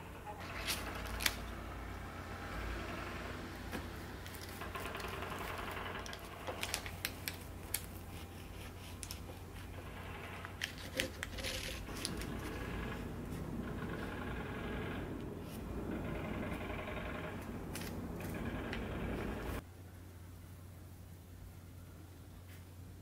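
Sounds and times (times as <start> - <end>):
crust crackling: 0.3 - 1.8, 3.7 - 19.6.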